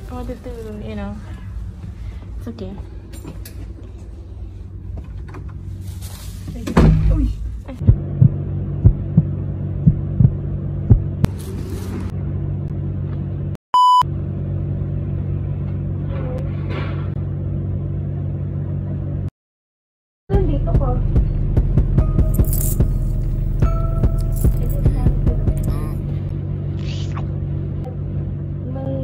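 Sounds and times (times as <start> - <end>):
steady low hum: 0.0 - 19.3, 20.3 - 29.0
rustling handling noise: 5.2 - 6.7
high censor bleep: 13.8 - 14.0.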